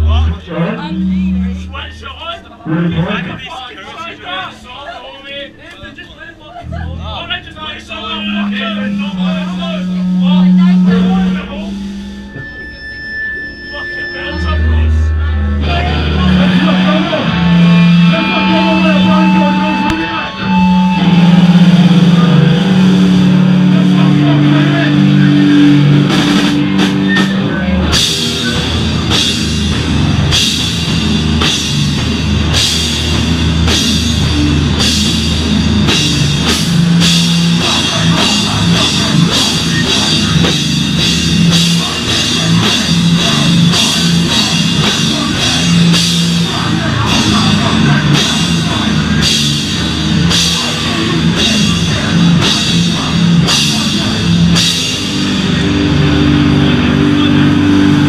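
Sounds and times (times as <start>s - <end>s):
hardcore band playing live: 0.0s - 4.6s, 5.5s - 58.0s
cymbal crashes: 8.4s - 15.0s.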